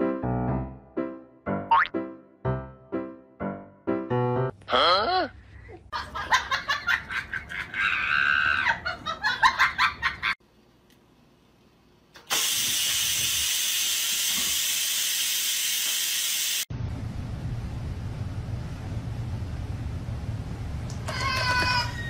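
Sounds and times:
person laughing: 0:04.7 - 0:10.4
rice cooker steam hissing: 0:12.2 - 0:16.7.

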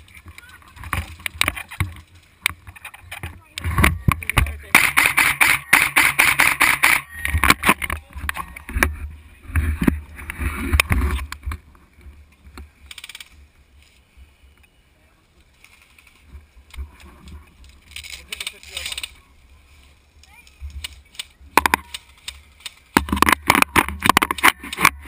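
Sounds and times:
airsoft guns firing: 0:04.4 - 0:07.8
automatic fire clicks: 0:12.8 - 0:13.4.

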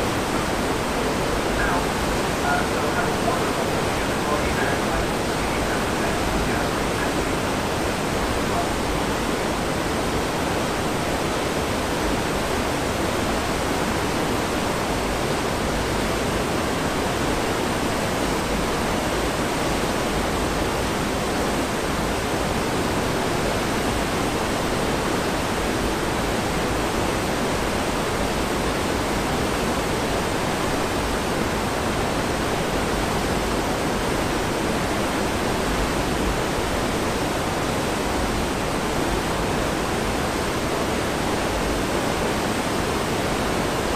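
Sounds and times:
rushing water of ship wake: 0:00.0 - 0:43.9.

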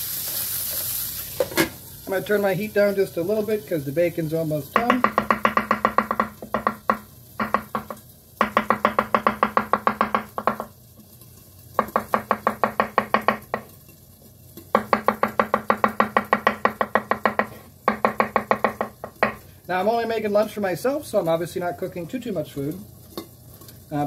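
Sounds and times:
knife chopping on wooden board: 0:04.8 - 0:10.7, 0:11.8 - 0:13.6, 0:14.7 - 0:19.4.

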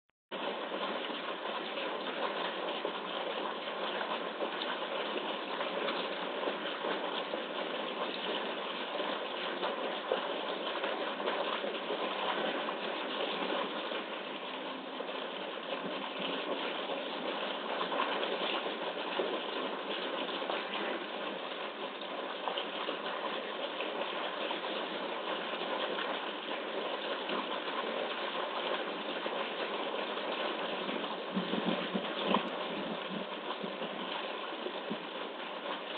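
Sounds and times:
water jet splashing into pool: 0:00.3 - 0:35.9.

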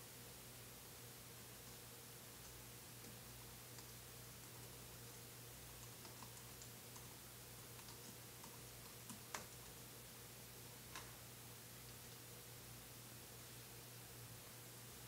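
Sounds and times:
faint electrical hum: 0:00.0 - 0:15.0
keyboard typing: 0:02.4 - 0:09.8.

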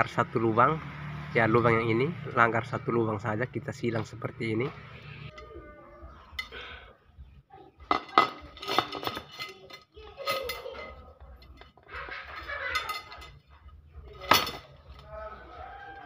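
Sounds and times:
metal spokes clinking: 0:07.8 - 0:16.0.

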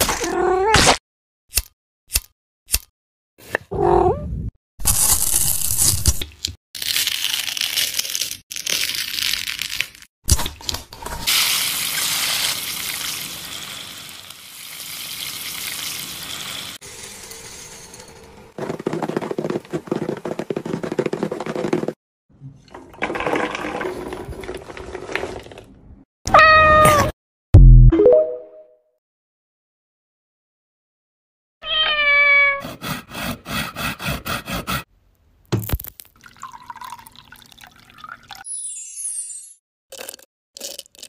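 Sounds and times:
hissing pouring noise: 0:11.3 - 0:17.9.

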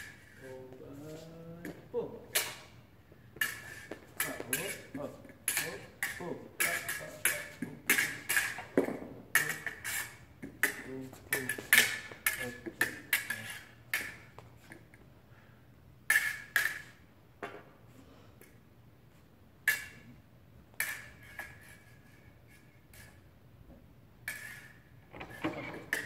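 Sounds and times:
fencing blades clinking: 0:03.4 - 0:14.4, 0:19.6 - 0:20.1.

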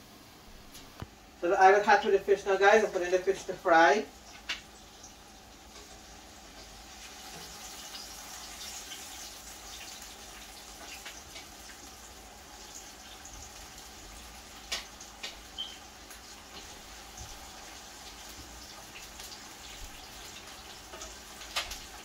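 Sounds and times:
fish sizzling in hot oil: 0:02.6 - 0:22.0.

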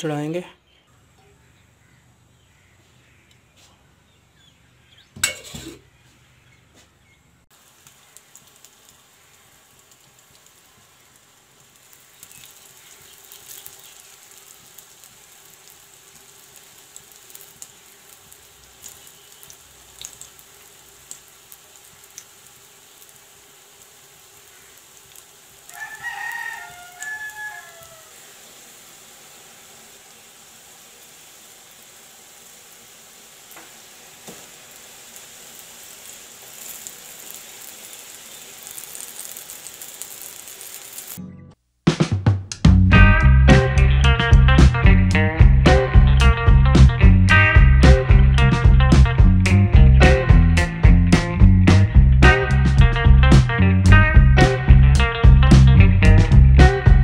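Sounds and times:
batter sizzling in oil: 0:04.4 - 0:06.8, 0:07.4 - 0:41.2, 0:43.2 - 0:57.0
rooster crowing: 0:25.6 - 0:28.6.

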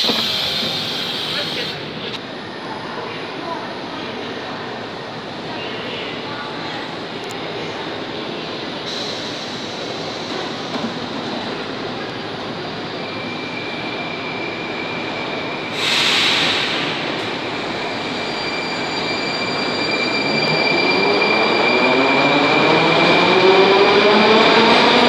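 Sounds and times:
loud hiss of air: 0:00.0 - 0:01.8, 0:08.9 - 0:10.6, 0:15.7 - 0:17.5
train wheels rumbling on rails: 0:00.0 - 0:02.3.

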